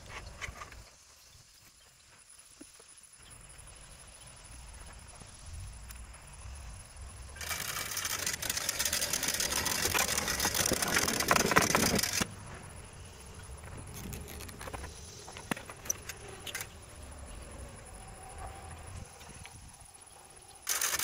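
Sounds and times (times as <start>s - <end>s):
sharp clicks: 7.4s - 12.3s, 20.6s - 21.0s
winch clicking and scraping: 7.4s - 12.3s, 13.9s - 16.8s, 20.6s - 21.0s.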